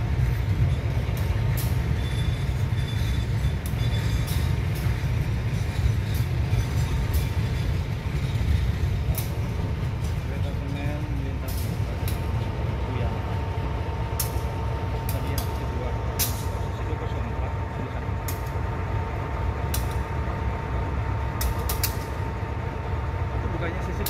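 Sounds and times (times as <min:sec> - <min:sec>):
train rumble: 0:00.0 - 0:24.0
sharp clacks: 0:21.4 - 0:22.2.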